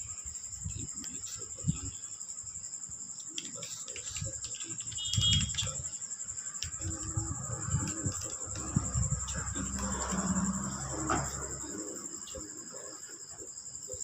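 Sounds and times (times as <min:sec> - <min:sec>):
crickets chirring: 0:00.0 - 0:14.0
fingers tapping calculator keys: 0:03.3 - 0:06.0
murmur of voices: 0:06.8 - 0:13.2.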